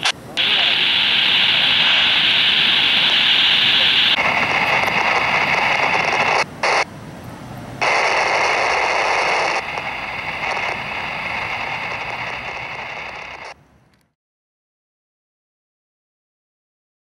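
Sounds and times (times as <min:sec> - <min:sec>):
radio static hiss: 0:00.0 - 0:13.6.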